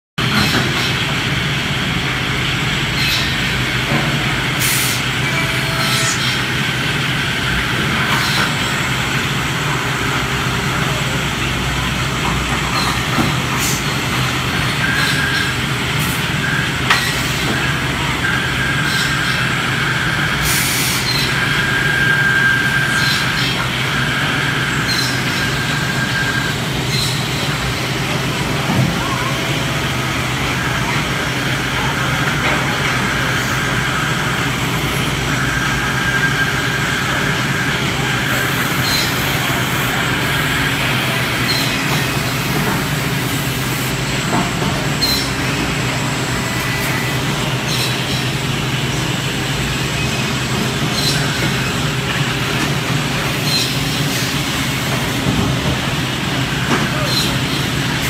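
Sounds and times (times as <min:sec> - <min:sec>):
cnc router machine drone: 0:00.2 - 0:58.0.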